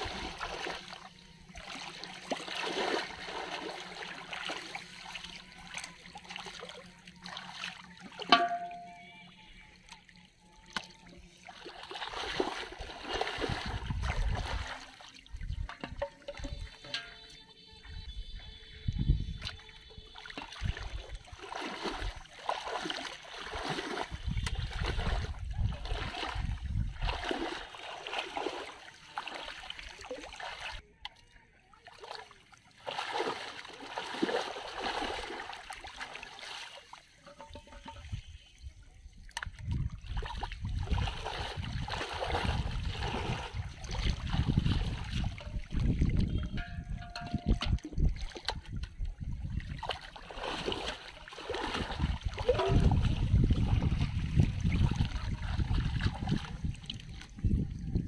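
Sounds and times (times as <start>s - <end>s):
water sloshing and splashing: 0.0s - 38.4s, 39.0s - 58.0s.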